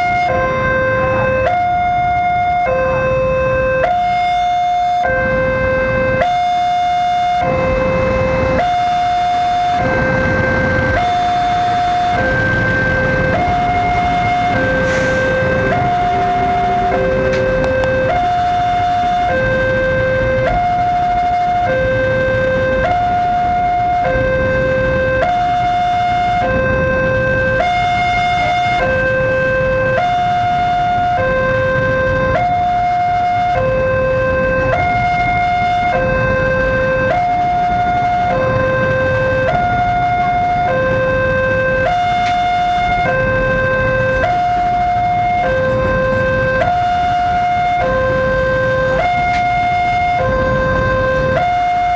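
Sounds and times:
level crossing two-tone alarm: 0.0s - 51.9s
freight train rumbling: 7.5s - 25.6s.

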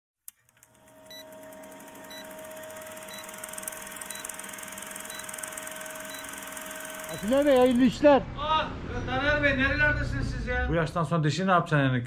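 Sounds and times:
short high electronic beeps: 3.1s - 3.4s, 4.0s - 4.4s, 5.0s - 7.8s.

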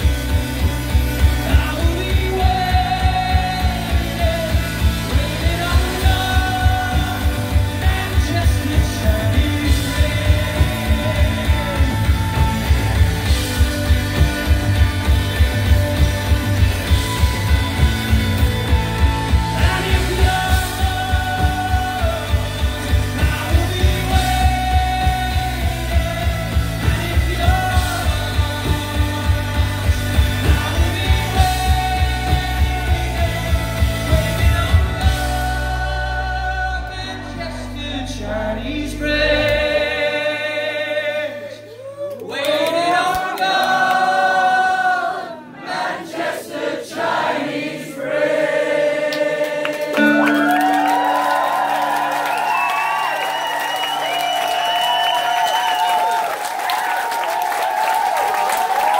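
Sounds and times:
drum kit beat: 0.0s - 36.1s
electric guitars: 0.0s - 40.8s, 49.7s - 58.9s
bass guitar: 0.0s - 42.3s.

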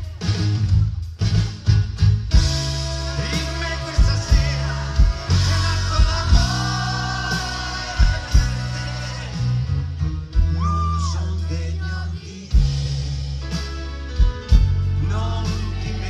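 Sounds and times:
bass guitar: 0.0s - 16.0s
drum hits: 1.2s - 9.7s
man singing into a microphone: 3.0s - 9.8s, 10.4s - 12.9s, 14.9s - 16.0s.

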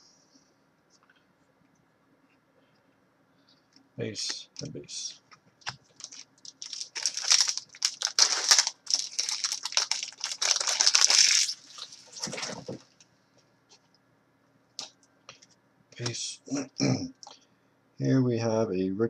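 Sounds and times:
wrapper rustle: 5.8s - 12.9s
foil wrapper tearing and crinkling: 5.9s - 12.8s.

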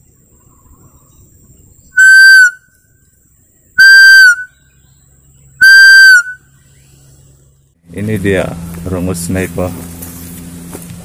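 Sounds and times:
bamboo animal call blown: 2.0s - 2.7s, 3.8s - 4.6s, 5.6s - 6.4s.

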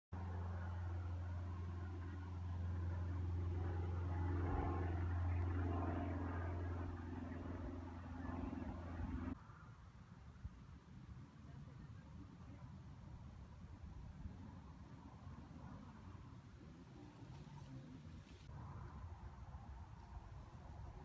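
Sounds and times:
low engine-like hum: 0.2s - 9.4s, 11.2s - 21.0s.

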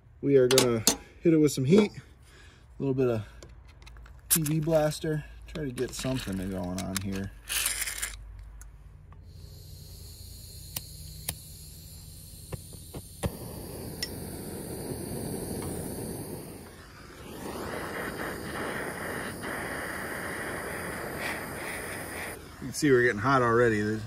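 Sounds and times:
torch flame hissing: 9.2s - 24.0s
torch igniter clicks: 10.6s - 22.4s.

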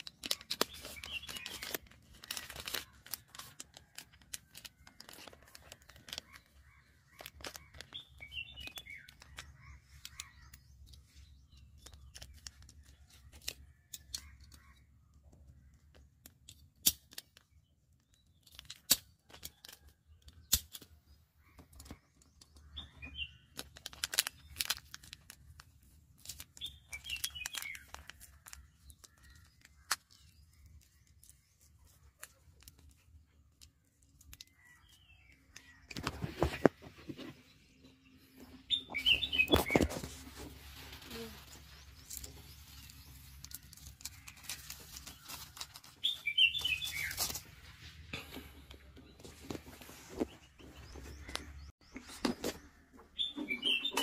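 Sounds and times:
birds chirping: 0.0s - 3.9s, 4.7s - 16.6s, 21.0s - 54.0s
plastic wrapper crinkling: 0.0s - 10.5s, 23.2s - 35.0s, 39.1s - 47.9s
dry leaves and twigs rustling: 0.0s - 14.8s, 18.1s - 48.4s.

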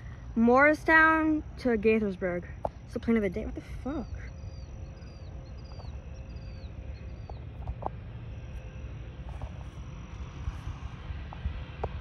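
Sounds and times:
faint high whine: 0.0s - 12.0s
fluctuating low rumble: 0.0s - 12.0s
bird chirps: 3.9s - 7.6s.

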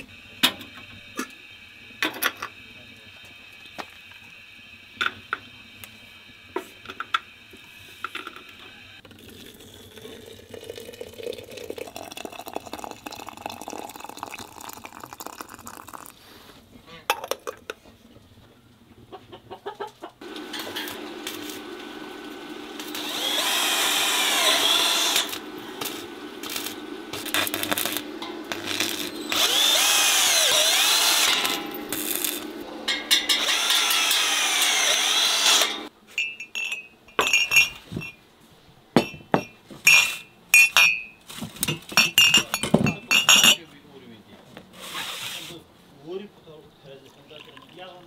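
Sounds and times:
cordless drill squealing on steel: 22.8s - 25.4s, 28.5s - 31.6s, 33.3s - 35.9s
glass mugs clinking: 36.1s - 38.2s, 39.0s - 43.6s.

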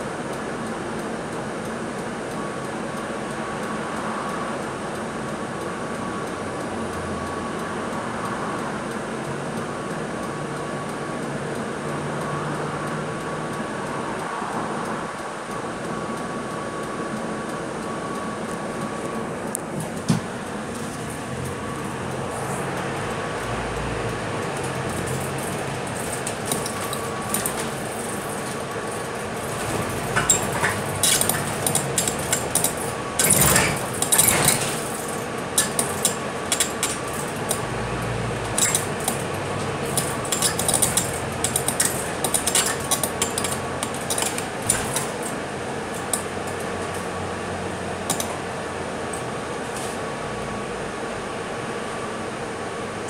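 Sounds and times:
bus engine hum with whine: 0.0s - 53.0s
interior fittings rattling: 24.5s - 47.0s.

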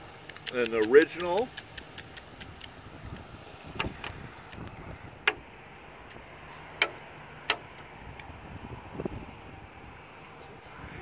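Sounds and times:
peanut shells cracking: 0.2s - 3.2s.

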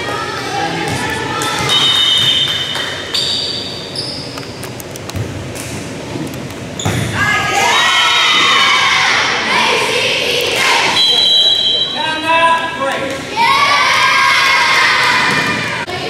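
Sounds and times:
high-pitched shouts and cheering: 7.2s - 11.0s, 13.3s - 15.9s.

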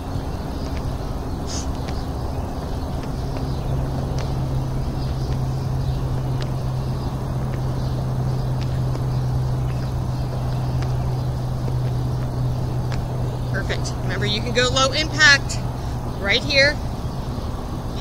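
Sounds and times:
low mechanical hum: 0.0s - 18.0s
rumbling noise: 0.0s - 18.0s.

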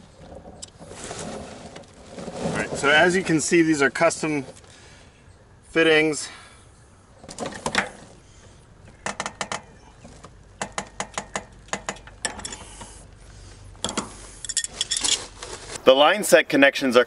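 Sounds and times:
wrenches clicking on metal: 10.6s - 13.0s, 13.8s - 15.3s.

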